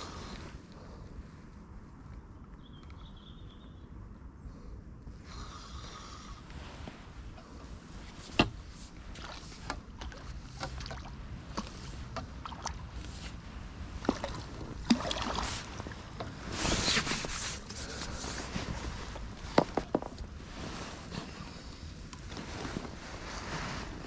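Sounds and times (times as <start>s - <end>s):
water splashing: 8.7s - 16.5s.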